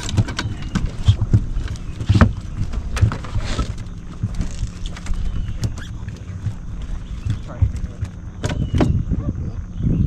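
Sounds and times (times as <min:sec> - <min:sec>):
knocks and thumps on boat deck: 0:00.0 - 0:09.3.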